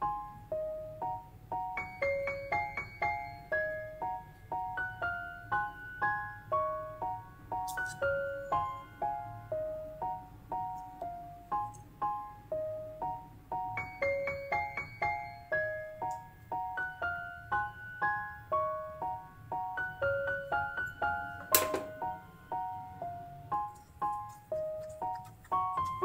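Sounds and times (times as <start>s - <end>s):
piano melody: 0.0s - 26.0s
sharp click: 21.4s - 22.0s.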